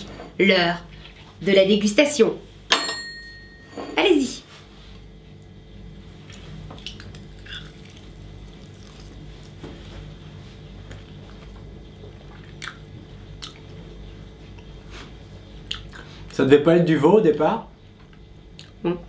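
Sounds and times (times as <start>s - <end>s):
steady low hum: 0.0s - 19.0s
people chewing: 5.4s - 16.3s, 18.0s - 19.0s
mouth clicks and smacks: 12.3s - 12.8s, 13.4s - 13.7s, 15.6s - 16.1s, 18.5s - 18.8s.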